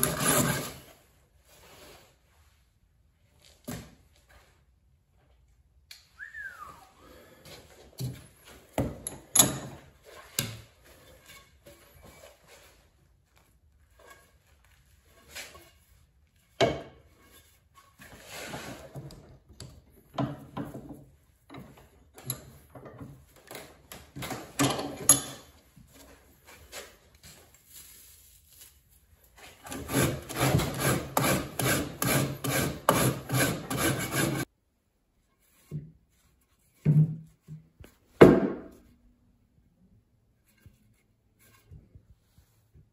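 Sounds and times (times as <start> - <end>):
hand tool scraping wood: 0.0 - 2.2, 13.9 - 19.4, 29.3 - 34.5.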